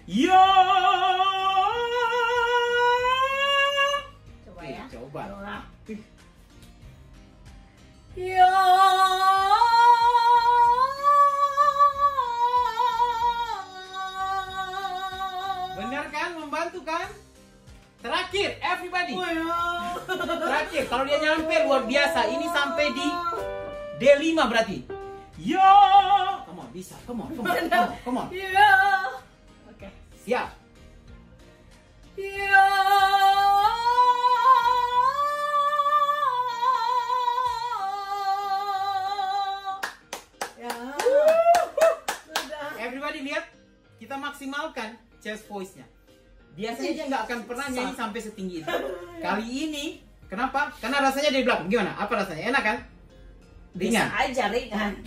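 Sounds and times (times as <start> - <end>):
woman singing a long held vowel: 8.2 - 15.8, 32.2 - 39.8.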